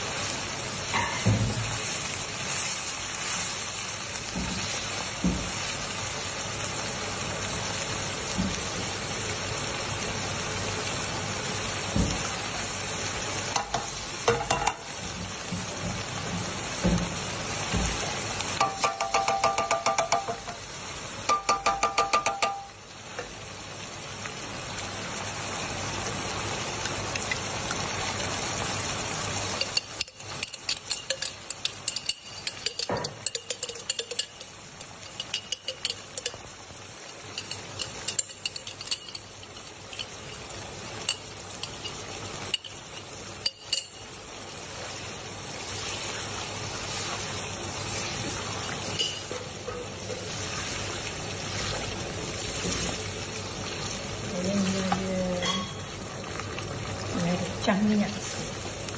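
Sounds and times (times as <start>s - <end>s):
sauce sizzling in a wok: 0.0s - 58.9s
wooden spatula knocking on pan: 13.6s - 18.0s, 18.6s - 20.6s, 21.3s - 22.8s.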